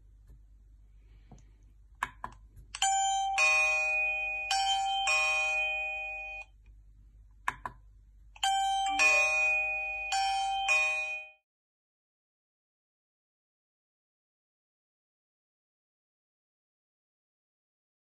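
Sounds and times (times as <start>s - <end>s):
electronic ding-dong chime: 2.8s - 6.5s, 8.4s - 11.4s
doorbell button click: 8.4s - 11.4s.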